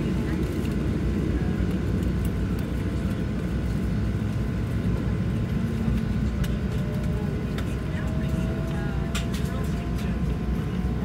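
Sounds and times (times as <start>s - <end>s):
jet engines idling rumble: 0.0s - 11.0s.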